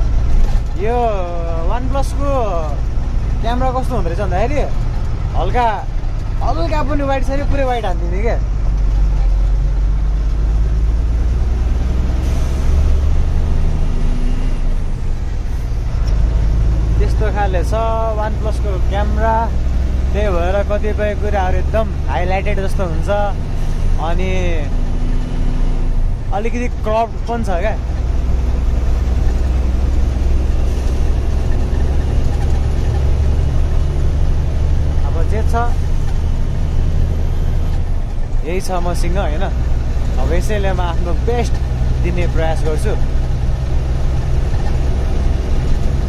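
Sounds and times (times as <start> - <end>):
road noise: 0.0 - 46.0
truck engine rumble: 0.0 - 46.0.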